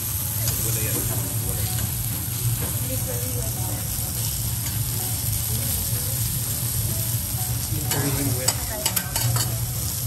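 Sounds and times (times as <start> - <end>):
food sizzling on a griddle: 0.0 - 10.0
metal spatulas clinking on steel: 7.9 - 9.6.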